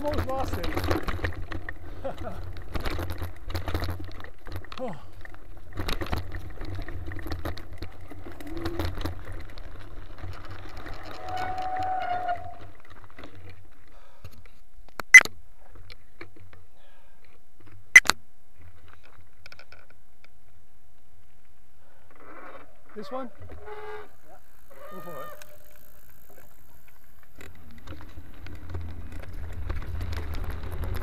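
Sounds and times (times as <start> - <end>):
mountain bike rattling over rough ground: 0.0 - 17.9, 21.2 - 31.0
bike brake squeal: 23.6 - 25.8.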